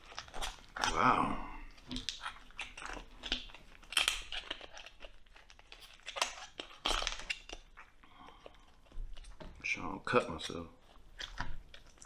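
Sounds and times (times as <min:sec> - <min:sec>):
meat tearing: 0:00.0 - 0:12.0.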